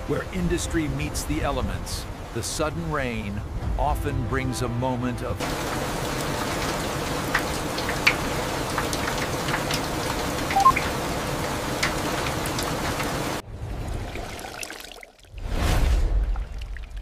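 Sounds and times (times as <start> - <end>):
steady rain: 0.0 - 14.3
pouring water: 5.4 - 17.0
two-tone electronic beep: 10.5 - 10.8.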